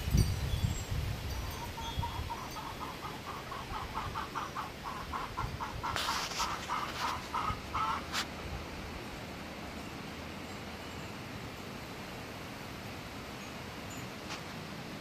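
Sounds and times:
wind buffeting microphone: 0.0s - 9.0s.

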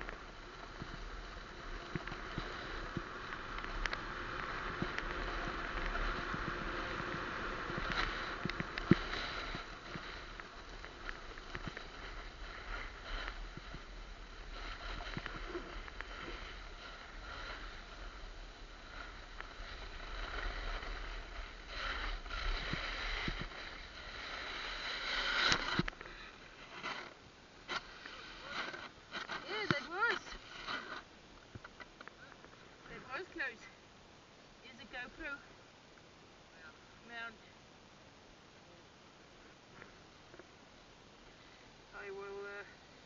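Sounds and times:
snowboard scraping over snow: 0.0s - 31.1s.

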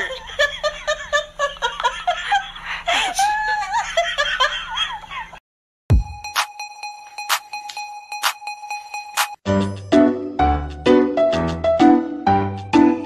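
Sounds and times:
high-pitched giggling and laughter: 0.0s - 5.4s
music with a steady beat: 5.9s - 12.9s.

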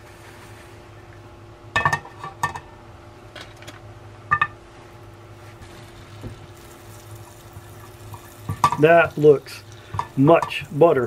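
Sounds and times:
steady low hum: 0.0s - 11.0s
metal pan and utensils clinking: 8.5s - 9.0s.

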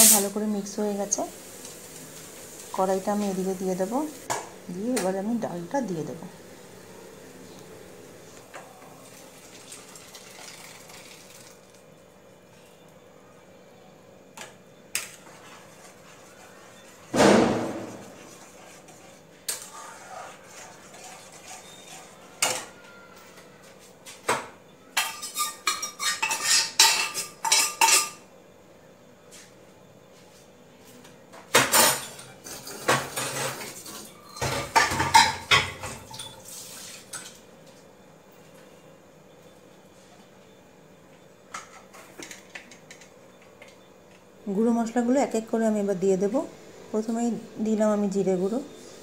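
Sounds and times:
metal cookware clanking: 25.0s - 28.2s, 31.6s - 36.4s.

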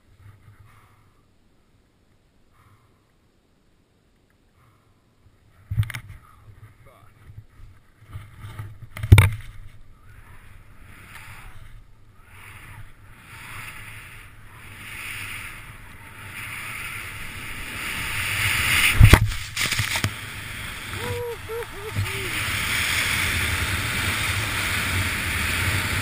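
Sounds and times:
skis scraping over snow: 7.6s - 26.0s
wind on microphone: 12.3s - 26.0s
skis thumping on snow: 12.6s - 26.0s.

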